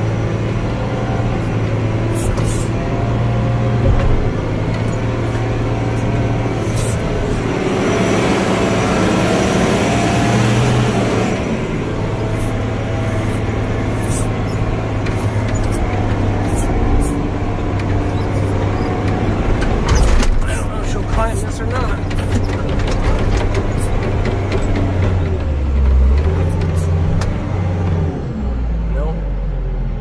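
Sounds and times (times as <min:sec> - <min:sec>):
diesel engine drone: 0:00.0 - 0:30.0
cab rattles and clunks: 0:01.5 - 0:07.6, 0:13.1 - 0:28.0.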